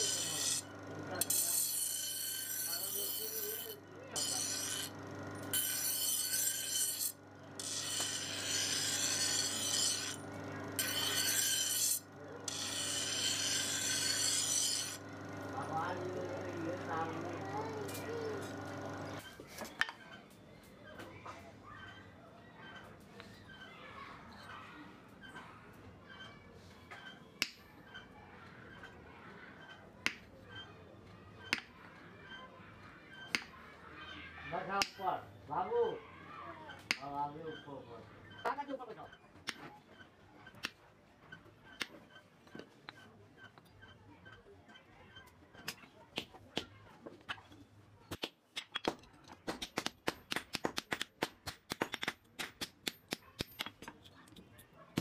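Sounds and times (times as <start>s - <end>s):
knife grinding on abrasive wheel: 0.0s - 19.4s.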